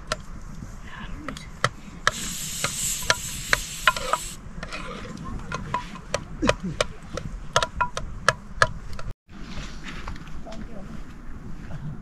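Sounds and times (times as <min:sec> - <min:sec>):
steady hiss: 0:02.0 - 0:04.4.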